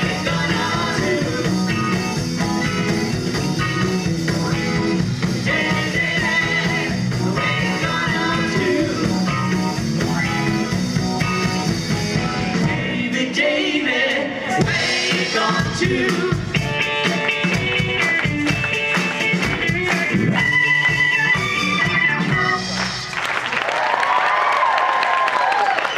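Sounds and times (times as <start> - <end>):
person singing: 0.0 - 1.8, 5.4 - 9.3, 12.8 - 17.6
live rock band playing: 0.0 - 13.2, 14.5 - 23.2
audience applause: 22.7 - 25.9.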